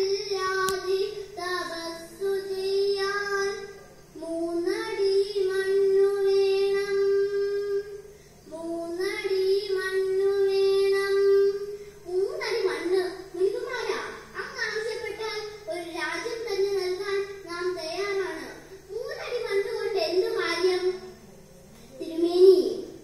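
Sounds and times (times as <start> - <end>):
girl singing into microphone: 0.0 - 14.0.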